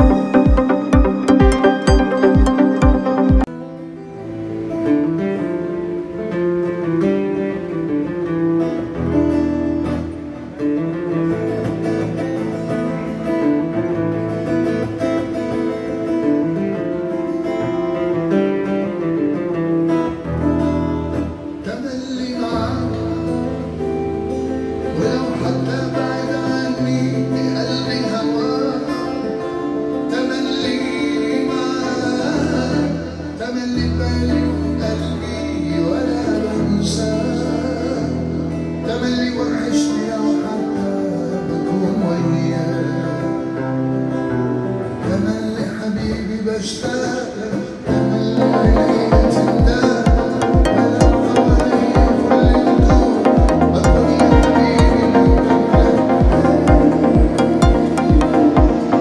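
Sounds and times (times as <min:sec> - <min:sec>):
man singing: 0:00.0 - 0:03.5, 0:21.6 - 0:23.4, 0:24.8 - 0:43.8, 0:45.0 - 0:59.0
acoustic guitar: 0:00.0 - 0:59.0.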